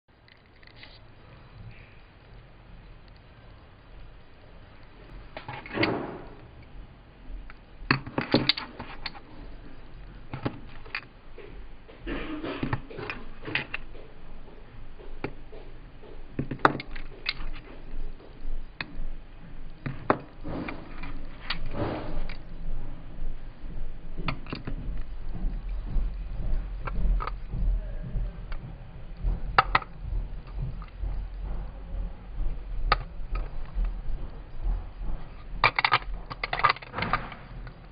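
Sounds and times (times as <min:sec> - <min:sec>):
plastic cases clicking together: 0:07.5 - 0:15.7, 0:16.3 - 0:19.0, 0:19.8 - 0:22.5, 0:24.2 - 0:25.5, 0:29.5 - 0:31.6, 0:35.1 - 0:37.9
low rumble: 0:08.9 - 0:37.9
plastic clicks and taps: 0:29.5 - 0:31.2.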